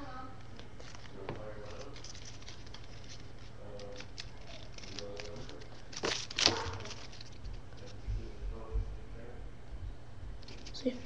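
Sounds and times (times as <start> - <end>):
paper rustling: 0.5 - 8.0, 10.4 - 11.0.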